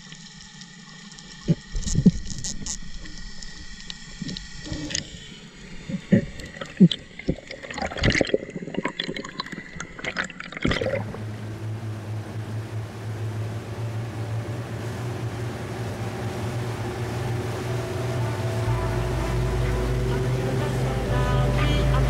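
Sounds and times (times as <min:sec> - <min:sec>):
underwater water noise: 0:00.0 - 0:22.0
steady low hum: 0:08.2 - 0:22.0.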